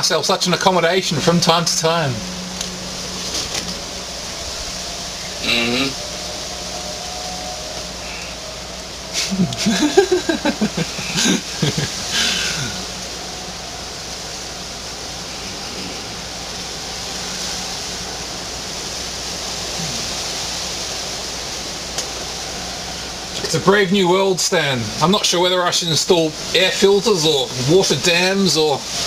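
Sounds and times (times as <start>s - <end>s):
video call line hiss: 0.0s - 29.0s.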